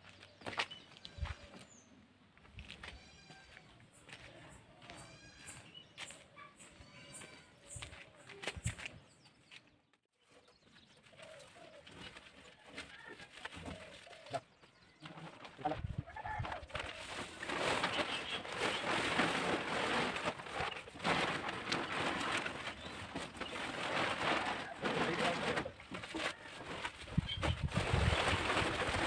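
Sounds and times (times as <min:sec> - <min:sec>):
plastic tarpaulin rustling: 0:15.0 - 0:29.0.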